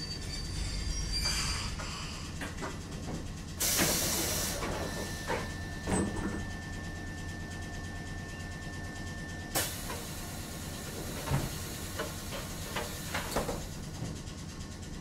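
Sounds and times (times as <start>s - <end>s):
electric train hum with high tone: 0.0s - 15.0s
clunks: 1.2s - 6.6s, 9.5s - 14.3s
air hissing: 3.6s - 5.2s.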